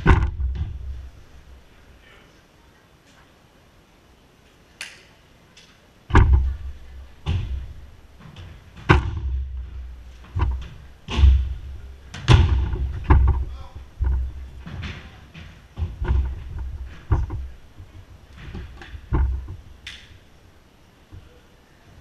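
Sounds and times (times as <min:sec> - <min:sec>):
ball slamming off walls: 0:06.1 - 0:17.6.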